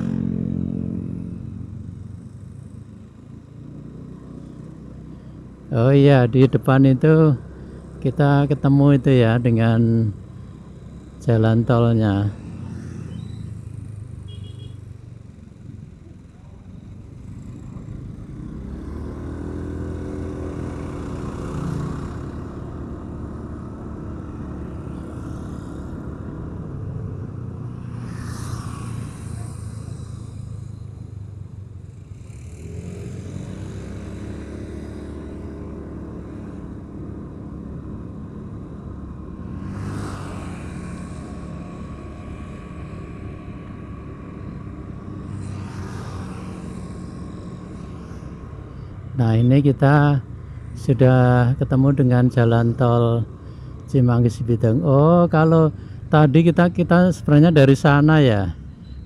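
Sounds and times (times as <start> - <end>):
motorcycle engine accelerating: 0.0 - 4.9, 17.2 - 49.6.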